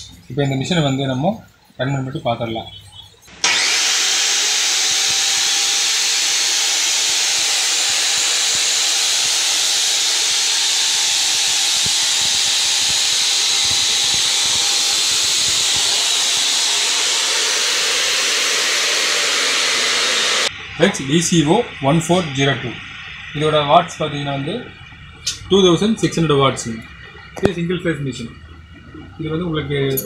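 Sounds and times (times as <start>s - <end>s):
chop saw motor running: 3.3s - 20.6s.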